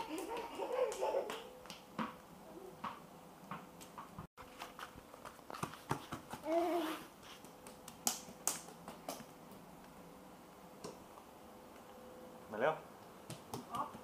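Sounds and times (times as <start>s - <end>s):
bare feet slapping on tiles: 5.2s - 9.6s, 13.2s - 14.0s
child vocal sound: 6.4s - 7.1s.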